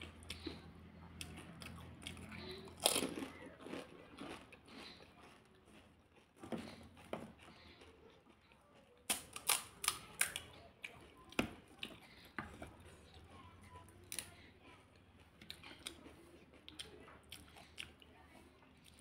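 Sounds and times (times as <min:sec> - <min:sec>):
chewing: 0:00.0 - 0:19.0
fried shells cracking: 0:01.2 - 0:05.0, 0:09.0 - 0:10.6
crunch of biting crisp shell: 0:09.0 - 0:10.5.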